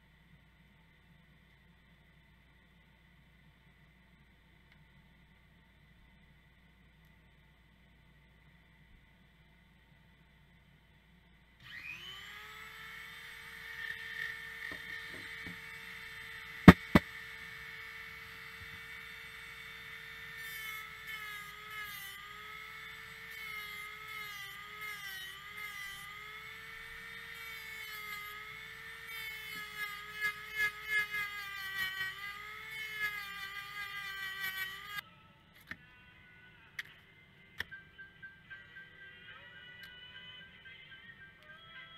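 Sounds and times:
rotary tool whining: 11.6 - 35.0.

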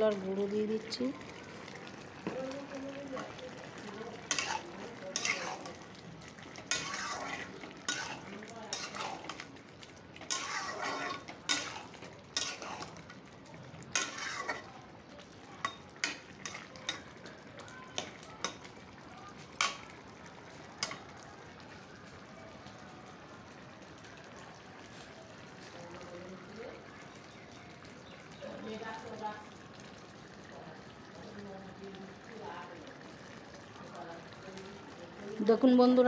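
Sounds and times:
curry sizzling: 0.0 - 36.0
metal spatula scraping a pot: 4.2 - 5.9, 6.5 - 9.5, 10.2 - 13.0, 13.9 - 14.7, 15.7 - 17.0.

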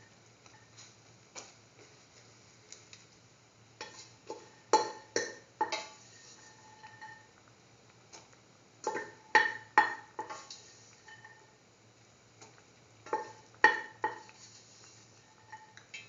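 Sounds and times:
spoon knocking metal pot: 3.8 - 6.0, 8.9 - 10.5, 13.1 - 14.3.

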